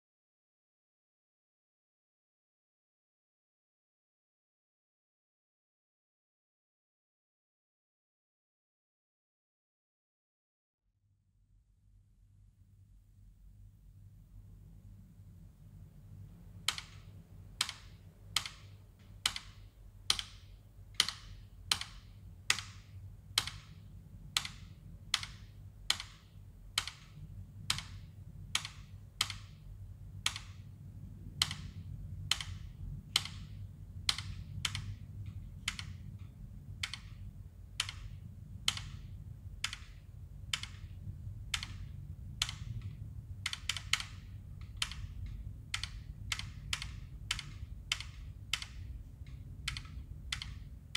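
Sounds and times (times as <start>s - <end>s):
low hum: 11.1s - 50.9s
keyboard key clicks: 21.0s - 23.8s, 37.8s - 50.7s.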